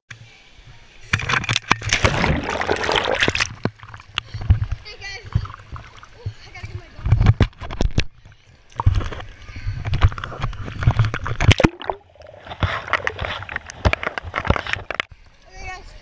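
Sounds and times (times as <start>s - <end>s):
pool water splashing: 0.7s - 7.2s, 10.6s - 15.0s.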